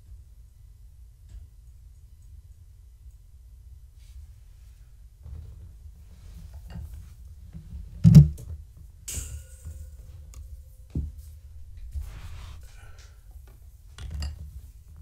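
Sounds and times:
heavy thump: 0:08.0 - 0:08.4
metal pen clanking and rattling: 0:09.1 - 0:10.4.

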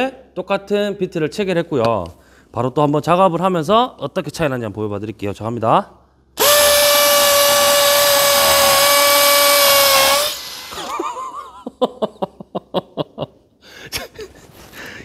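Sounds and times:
hammer drill boring into concrete: 0:06.4 - 0:11.1
man laughing breathily: 0:10.9 - 0:15.0.

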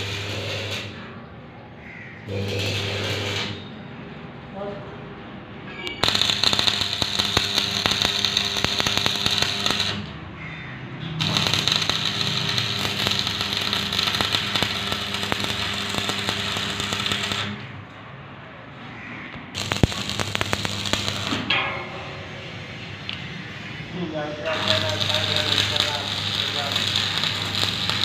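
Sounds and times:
welding arc crackling: 0:00.0 - 0:01.0, 0:02.3 - 0:03.6, 0:06.0 - 0:10.2, 0:11.2 - 0:17.8, 0:19.4 - 0:21.5, 0:24.5 - 0:28.0.

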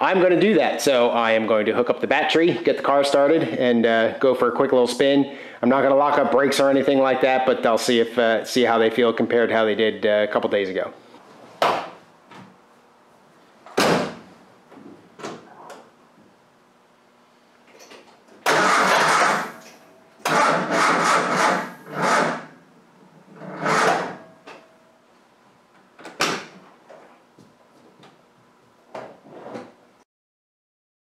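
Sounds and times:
engine cranking with starter: 0:18.4 - 0:19.6, 0:20.2 - 0:22.5.

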